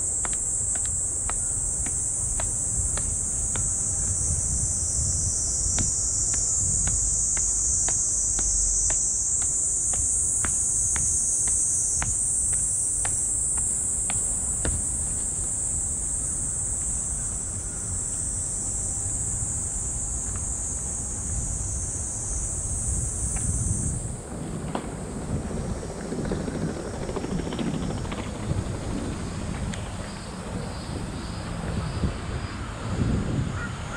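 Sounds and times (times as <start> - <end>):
cicadas chorus: 0.0 - 33.9
wind buffeting microphone: 0.0 - 33.9
faint footsteps: 5.7 - 15.8.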